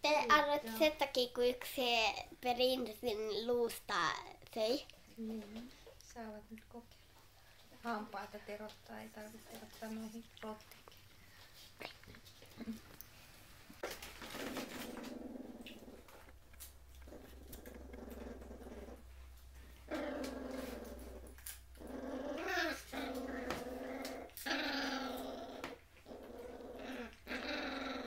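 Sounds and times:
puppies growling: 0:13.8 - 0:28.0.

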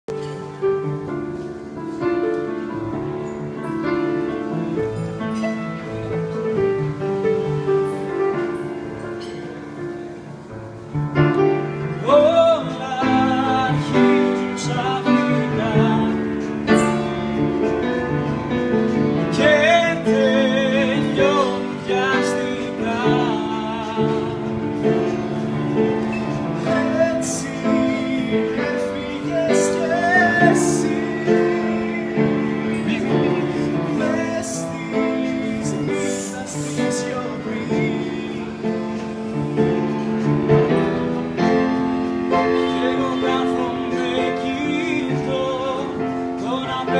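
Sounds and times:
grand piano playing: 0:00.0 - 0:46.9
man singing with vibrato: 0:11.6 - 0:46.9.

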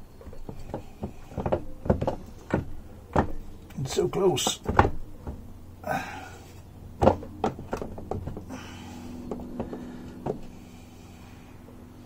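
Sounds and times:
faint steady hum: 0:00.0 - 0:12.0
knocks and clinks on engine case: 0:00.1 - 0:03.8, 0:04.4 - 0:05.6, 0:06.9 - 0:10.6.

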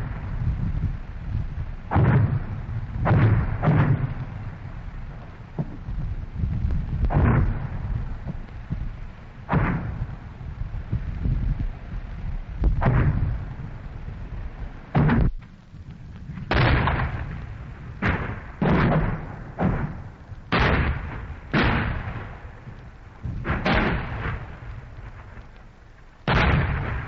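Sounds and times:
shells bursting: 0:00.0 - 0:27.0
tank guns firing: 0:01.9 - 0:04.5, 0:07.1 - 0:08.5, 0:09.5 - 0:10.1, 0:12.8 - 0:13.4, 0:14.9 - 0:15.5, 0:16.4 - 0:25.4, 0:26.2 - 0:27.0.

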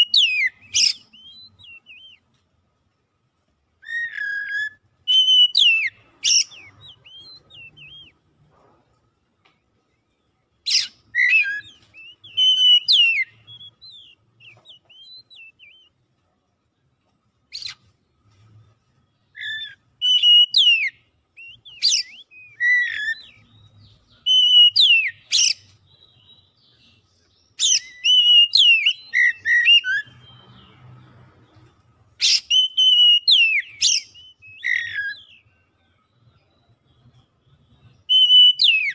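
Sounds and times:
bird singing whistled phrases: 0:00.0 - 0:02.2, 0:03.8 - 0:08.2, 0:10.7 - 0:16.0, 0:19.3 - 0:27.0, 0:27.6 - 0:30.8, 0:32.2 - 0:35.6, 0:37.8 - 0:38.9.

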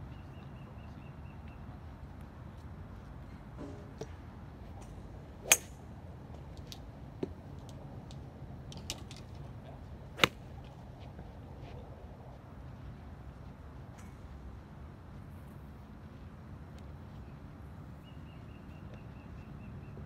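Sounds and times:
golf club striking ball: 0:05.4 - 0:05.8.

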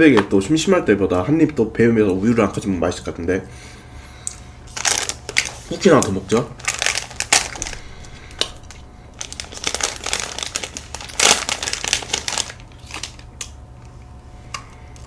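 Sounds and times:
plastic wrapper crinkling: 0:04.7 - 0:13.6.

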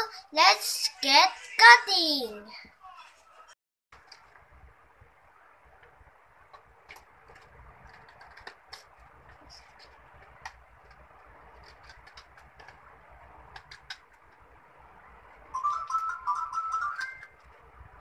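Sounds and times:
scissors cutting paper: 0:07.3 - 0:12.9.

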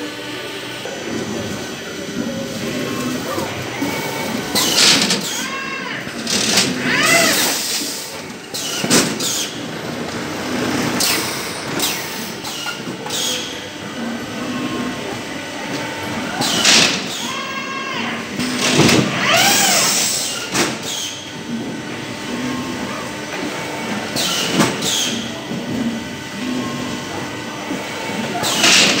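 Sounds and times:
packing machine running: 0:00.0 - 0:29.0
machine squeals: 0:02.4 - 0:07.8, 0:11.0 - 0:13.7, 0:16.3 - 0:21.3, 0:24.2 - 0:25.4
pneumatic hisses and clacks: 0:06.2 - 0:09.6, 0:11.0 - 0:13.6, 0:18.4 - 0:21.3, 0:24.1 - 0:25.3.

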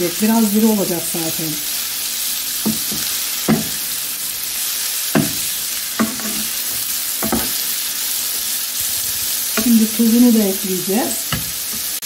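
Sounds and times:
vegetables sizzling in frying pan: 0:00.0 - 0:12.0
spatula scraping pan: 0:02.7 - 0:07.8.

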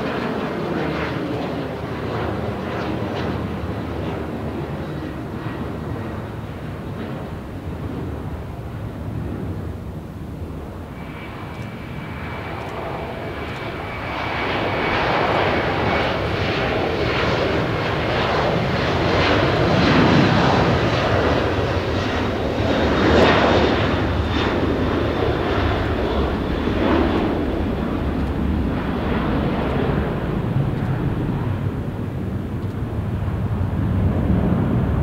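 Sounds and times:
jet engine roar: 0:00.0 - 0:35.0
faint steady whine: 0:06.1 - 0:15.1.

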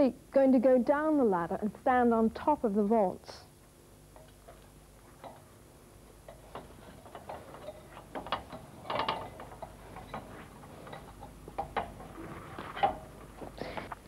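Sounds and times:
footsteps on metal ladder rungs: 0:06.2 - 0:13.6.

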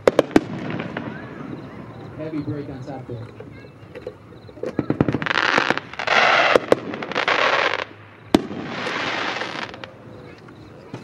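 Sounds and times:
sharp firework cracks: 0:00.0 - 0:02.0, 0:04.7 - 0:10.0
firework bursts with hissing trails: 0:00.0 - 0:03.0, 0:04.2 - 0:10.4.

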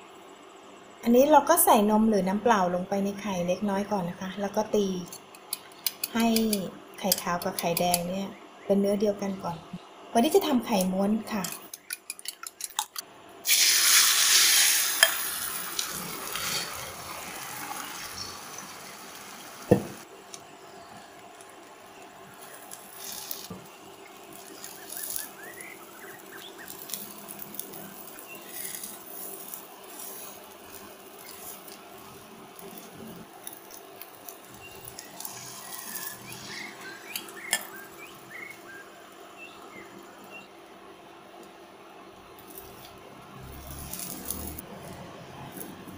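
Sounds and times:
egg sizzling in hot oil: 0:10.4 - 0:40.1, 0:42.4 - 0:45.9.

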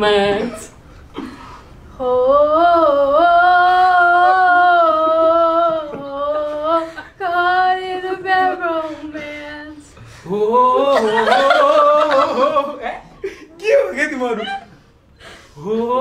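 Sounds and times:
person singing unaccompanied: 0:02.0 - 0:12.8.

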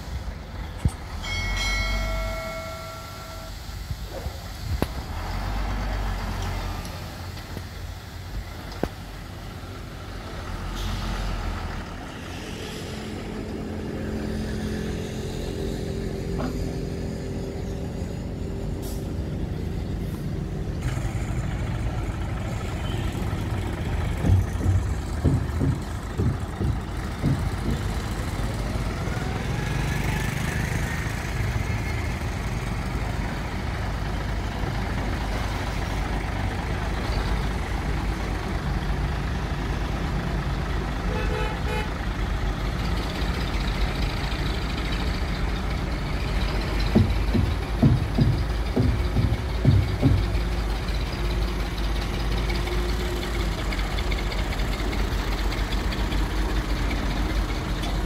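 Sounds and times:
truck diesel engine running: 0:00.0 - 0:58.0
tipper body knocks: 0:47.0 - 0:50.4.

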